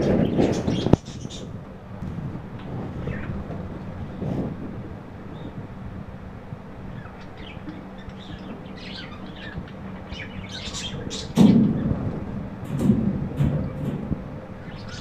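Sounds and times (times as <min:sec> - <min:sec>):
budgerigars chirping: 0:06.9 - 0:11.9, 0:14.6 - 0:15.0
low rumbling thump: 0:11.3 - 0:15.0.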